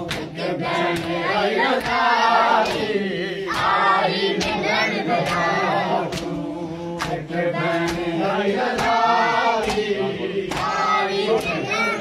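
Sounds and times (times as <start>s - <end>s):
men chanting in unison: 0.0s - 12.0s.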